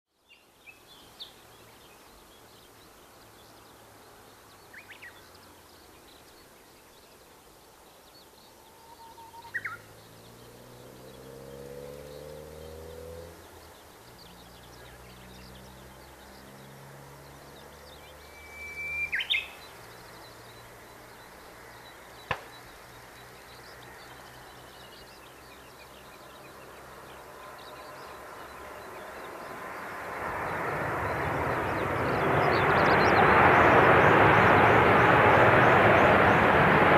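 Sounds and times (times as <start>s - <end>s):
birds chirping: 0.2s - 36.9s
jet engine drone: 26.6s - 36.9s.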